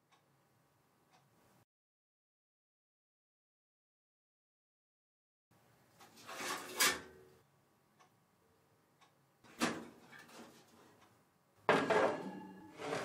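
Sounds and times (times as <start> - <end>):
metal baking tray clanking: 6.1 - 7.2, 11.7 - 13.0
kitchen knocks and clatters: 9.5 - 10.8, 11.6 - 13.0.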